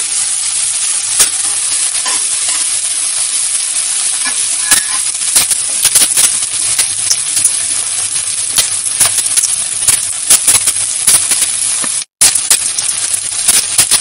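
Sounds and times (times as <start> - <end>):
onions sizzling in oil: 0.0 - 14.0
spoon scraping and clinking on pan: 1.2 - 2.8, 4.1 - 5.6.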